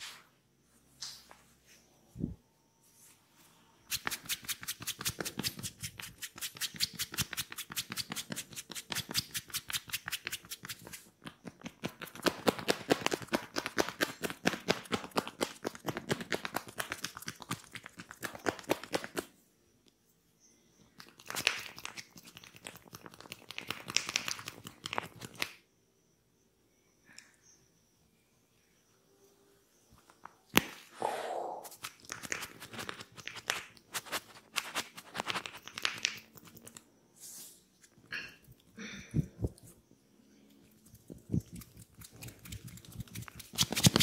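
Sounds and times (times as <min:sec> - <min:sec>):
hands clapping on back in massage: 0:04.0 - 0:19.3, 0:21.0 - 0:25.6, 0:34.5 - 0:36.2.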